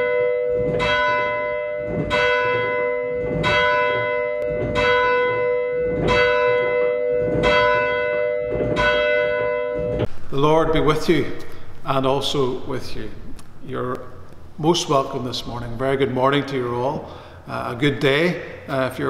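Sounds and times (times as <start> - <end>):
church bell tolling: 0.0 - 10.1.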